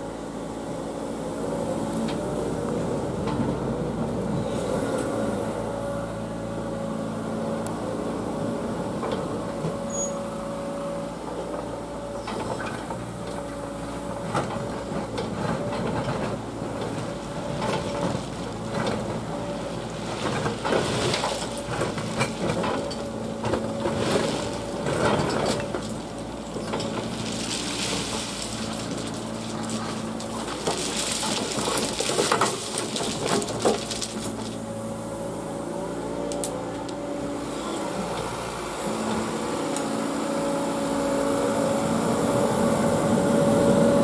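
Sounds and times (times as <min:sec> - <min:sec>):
excavator diesel engine running: 0:00.0 - 0:44.0
ballast stones scraping and crunching: 0:19.8 - 0:34.7.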